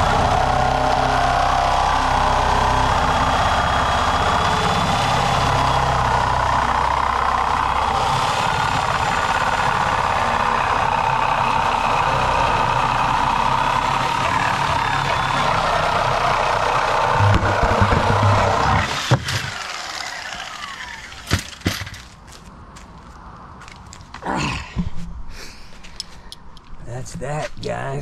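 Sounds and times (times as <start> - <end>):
reciprocating saw cutting steel: 13.4 - 21.9.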